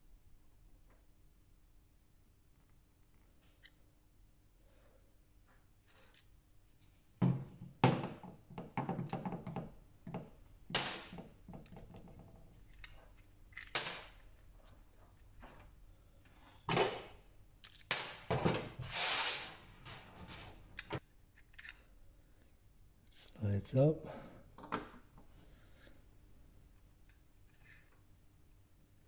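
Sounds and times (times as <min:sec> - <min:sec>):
hard plastic parts clicking and rattling: 0:08.7 - 0:15.7.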